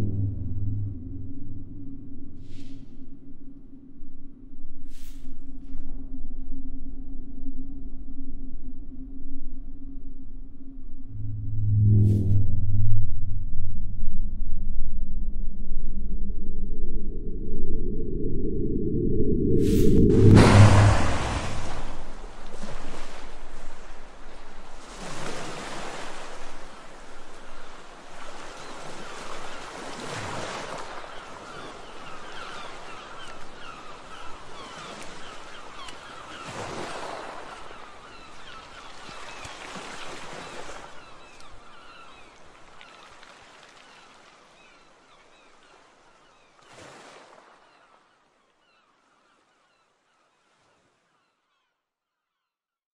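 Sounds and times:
waves washing onto rocky shore: 0:20.4 - 0:45.5
faint birds calling: 0:25.5 - 0:52.6.

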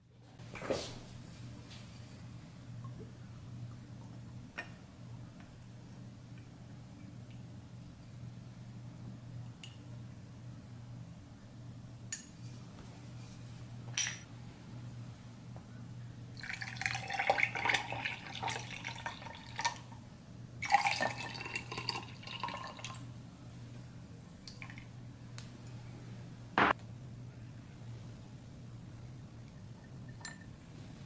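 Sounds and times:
glass clinks: 0:14.0 - 0:14.2
juice pouring over ice: 0:16.4 - 0:19.8, 0:20.6 - 0:23.0.

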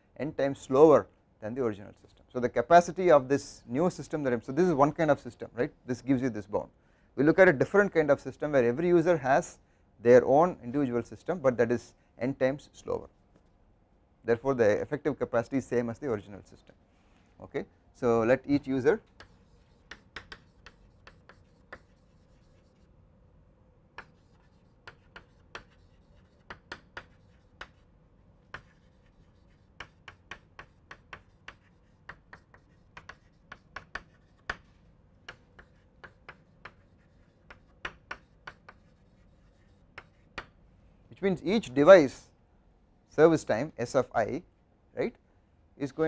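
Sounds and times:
chalk tapping and scratching: 0:19.0 - 0:22.9, 0:23.9 - 0:40.6.

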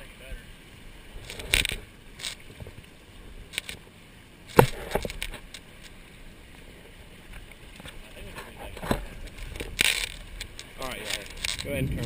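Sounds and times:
water slapping against hulls: 0:01.1 - 0:06.0.

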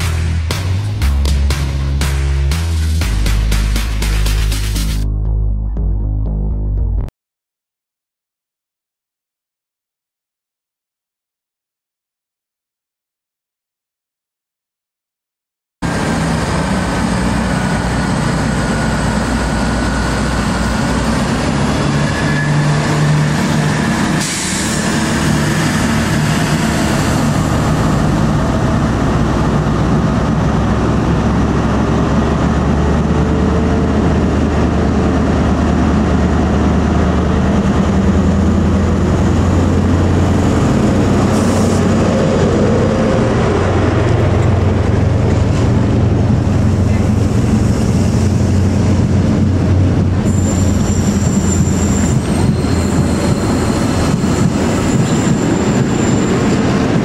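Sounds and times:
diesel locomotive engine running: 0:00.0 - 0:07.1, 0:15.8 - 0:57.0
train coaches rolling past: 0:15.8 - 0:57.0.

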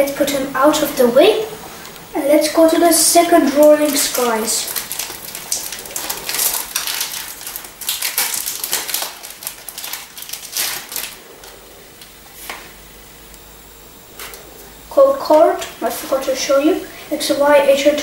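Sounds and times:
foil wrapper crinkling and tearing: 0:03.6 - 0:12.7.

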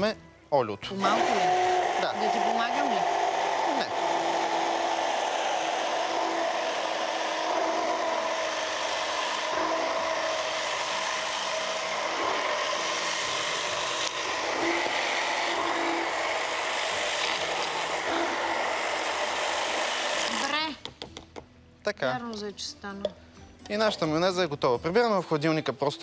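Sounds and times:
stick blender motor whine: 0:01.0 - 0:20.6.

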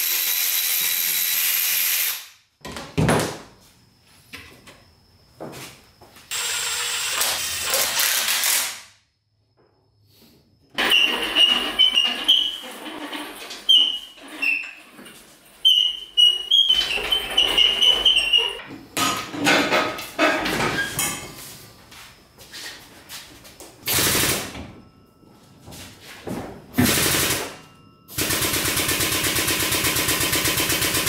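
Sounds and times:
casters squeaking: 0:10.8 - 0:18.7
metal knocks and clanks: 0:16.7 - 0:21.3.

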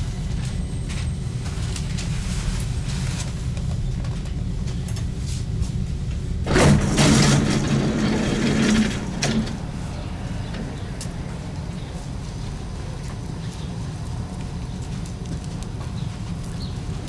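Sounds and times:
standing train humming: 0:00.0 - 0:17.0
subway doors hissing open: 0:06.4 - 0:13.0.

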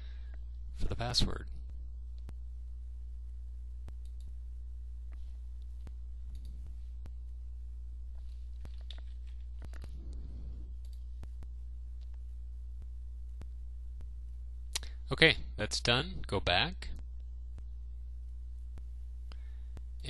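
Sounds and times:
low electrical hum: 0:00.0 - 0:20.0
mouse and keyboard clicks: 0:08.6 - 0:10.0.

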